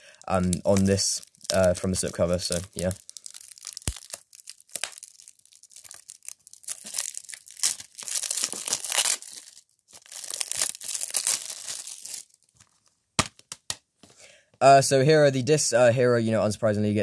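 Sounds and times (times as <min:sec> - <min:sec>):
plastic shrink-wrap crackling: 0:00.0 - 0:13.0.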